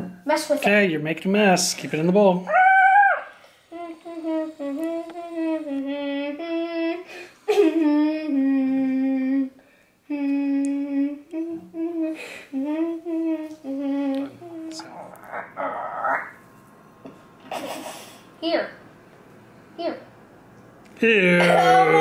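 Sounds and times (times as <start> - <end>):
high voice humming a tune: 2.5 - 7.1, 7.8 - 16.4, 21.0 - 22.0.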